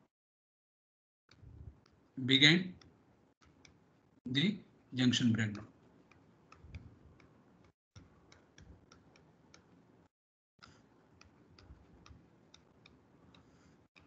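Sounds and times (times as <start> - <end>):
stylus tapping on pen tablet: 5.6 - 10.0, 10.6 - 14.0.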